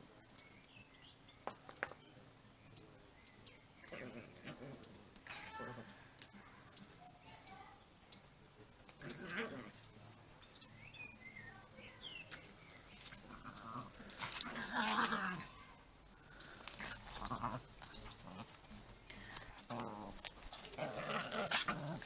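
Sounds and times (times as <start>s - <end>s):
dogs playing rough: 3.8s - 5.9s, 8.9s - 9.8s, 12.4s - 22.0s.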